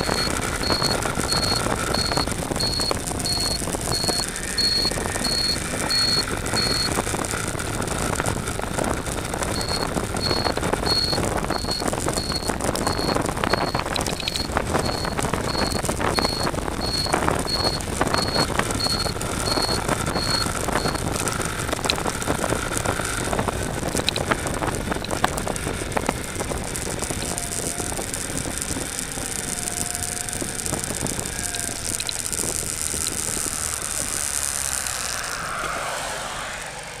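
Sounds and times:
high short beeps: 0:00.0 - 0:07.0, 0:09.6 - 0:21.0
motorcycle engine running: 0:00.0 - 0:37.0
wind and road noise: 0:00.0 - 0:37.0.

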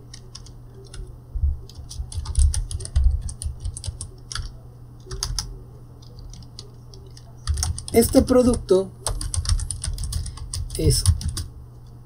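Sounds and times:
typing on a keyboard: 0:00.0 - 0:01.1, 0:01.7 - 0:11.5.

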